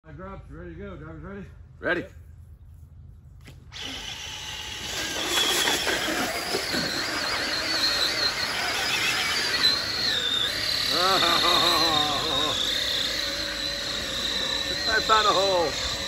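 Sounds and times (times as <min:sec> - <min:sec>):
electric motor whining: 0:03.7 - 0:16.0.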